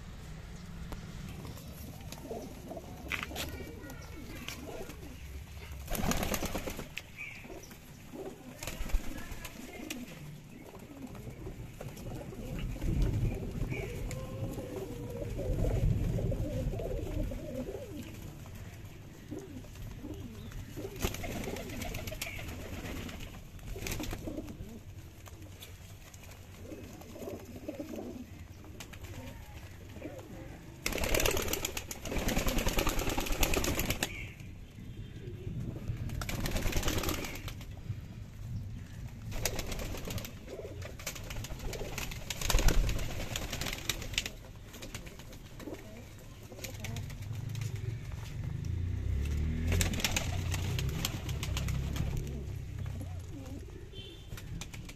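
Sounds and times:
pigeons cooing: 0:00.0 - 0:38.2, 0:38.8 - 0:54.9
wings flapping: 0:01.1 - 0:34.5, 0:35.8 - 0:37.8, 0:39.1 - 0:54.9.

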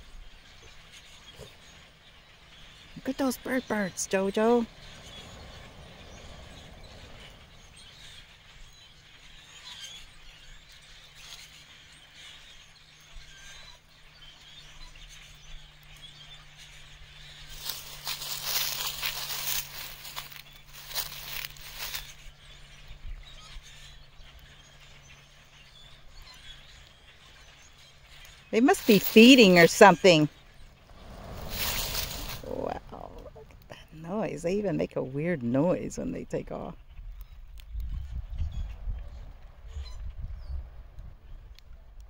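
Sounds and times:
steady low hum: 0:00.0 - 0:11.8
rushing noise: 0:28.7 - 0:33.7.

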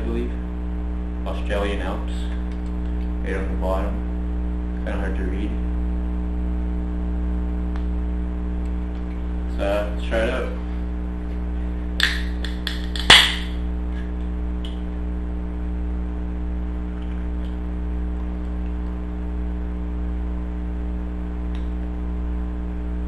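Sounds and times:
steady hum: 0:00.0 - 0:23.0
can popping open with hiss: 0:12.0 - 0:13.6.

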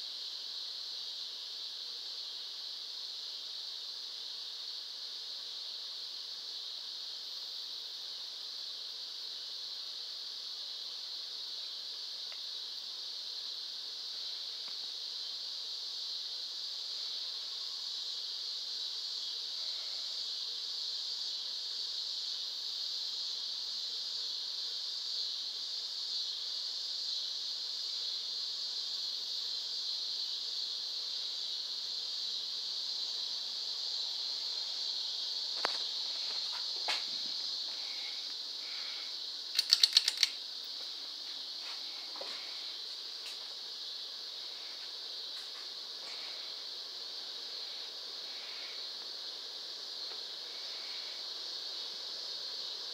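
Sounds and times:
ceiling fan hissing: 0:00.0 - 0:52.9
sharp clicks: 0:39.5 - 0:40.4.

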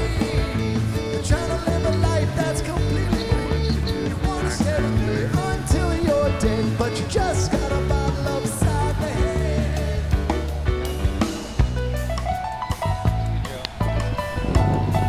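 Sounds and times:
person singing: 0:00.0 - 0:10.6
rock song with drums and guitar: 0:00.0 - 0:15.0.

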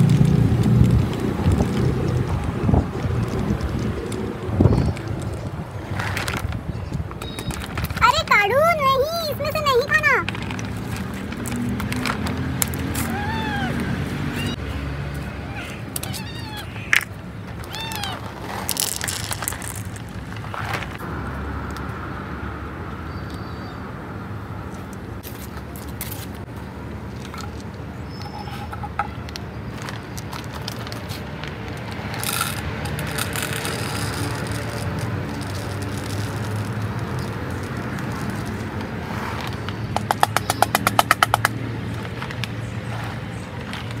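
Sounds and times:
kitten crunching dry kibble: 0:00.0 - 0:06.6, 0:16.0 - 0:21.0, 0:29.7 - 0:39.7
plastic food bag rustling: 0:18.2 - 0:21.0
kibble being poured: 0:18.4 - 0:20.3, 0:32.2 - 0:38.7.

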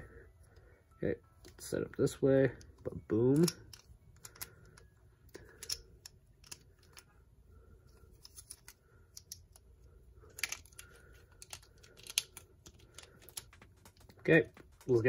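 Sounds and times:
plastic parts clicking and rattling: 0:02.5 - 0:07.2, 0:08.0 - 0:15.0.

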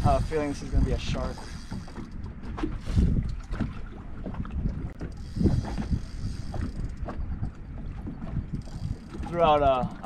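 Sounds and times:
waves slapping boat hull: 0:00.0 - 0:10.0
wind buffeting microphone: 0:00.0 - 0:10.0.

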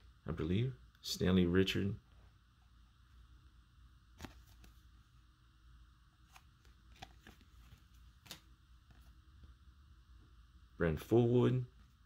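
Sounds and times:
card and plastic sleeve handling: 0:04.2 - 0:04.9, 0:06.2 - 0:09.2.

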